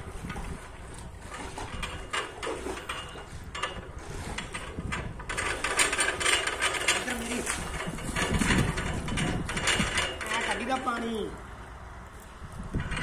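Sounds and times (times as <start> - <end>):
well pulley clicking and rattling: 1.2 - 11.0.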